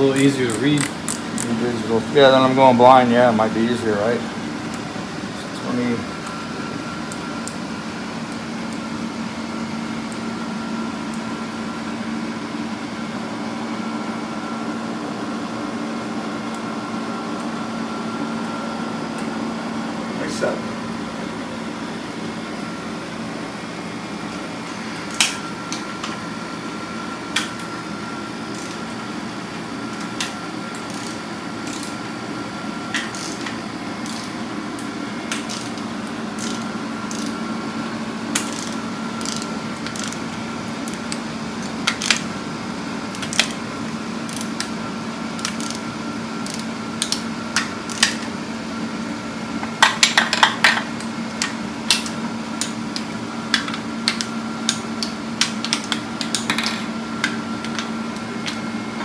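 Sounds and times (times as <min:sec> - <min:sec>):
steady mechanical hum: 0:00.0 - 0:59.0
wrench clicking on nuts: 0:00.5 - 0:01.5, 0:28.5 - 0:28.8, 0:30.9 - 0:32.0, 0:36.4 - 0:37.4, 0:38.4 - 0:40.2, 0:45.4 - 0:45.8, 0:46.4 - 0:47.2, 0:47.9 - 0:48.3.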